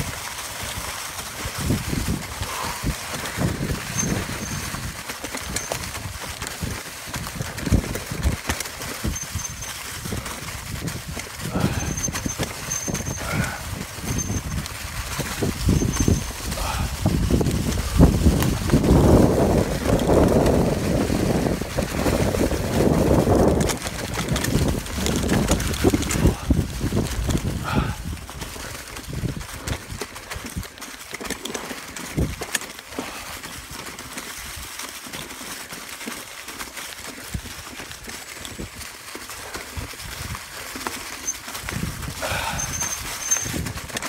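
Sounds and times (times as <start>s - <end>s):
wind rushing over microphone: 0.0s - 30.7s, 41.6s - 44.0s
bike rattling over bumps: 0.0s - 44.0s
bike tyres rolling through leaves: 0.0s - 44.0s.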